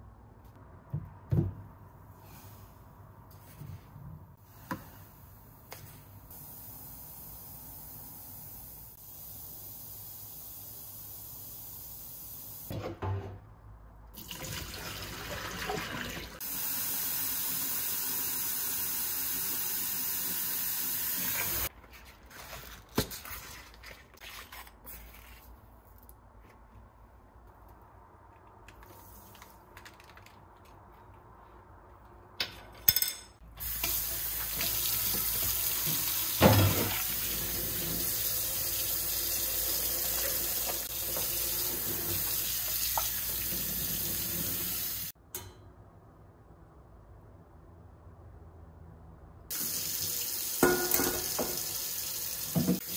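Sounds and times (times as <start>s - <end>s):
tap running into a pot: 50.6s - 51.7s.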